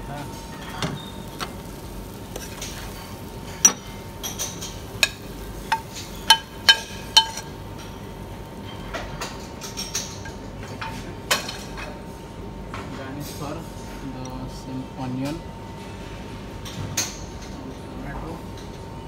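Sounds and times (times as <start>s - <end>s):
metal spoon clinking on ceramic bowl: 5.0s - 7.5s.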